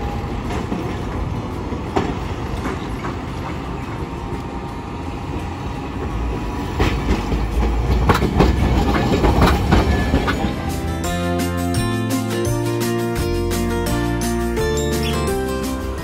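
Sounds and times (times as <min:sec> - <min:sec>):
wheels clacking over rail joints: 0:00.0 - 0:11.1
streetcar rolling: 0:00.0 - 0:16.0.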